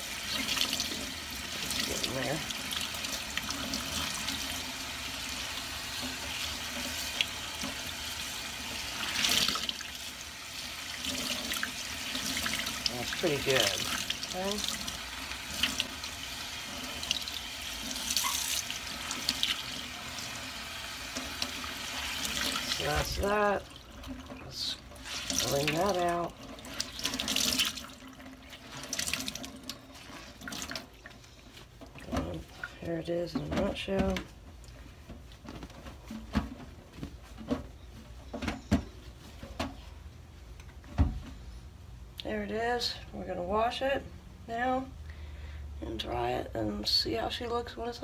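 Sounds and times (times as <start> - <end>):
faucet running into sink: 0.0 - 30.9
water splashes: 11.0 - 16.0, 21.5 - 30.9.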